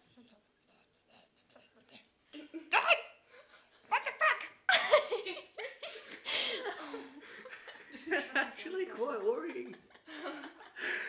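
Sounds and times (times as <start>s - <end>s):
teenagers laughing and giggling: 4.7s - 11.0s.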